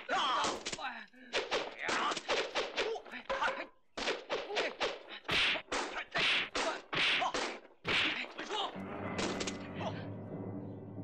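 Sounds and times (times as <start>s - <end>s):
film score music: 8.6s - 11.0s.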